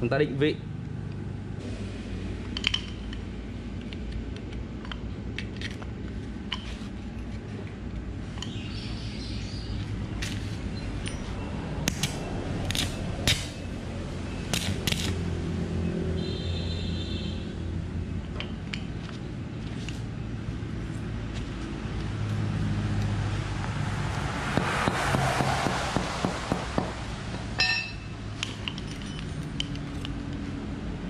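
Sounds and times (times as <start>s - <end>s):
metal clicks and clinks: 27.6s - 30.4s.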